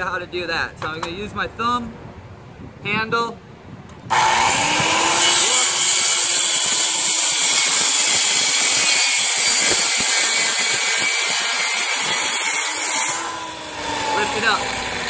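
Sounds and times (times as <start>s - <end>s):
circular saw cutting boards: 4.1s - 15.0s.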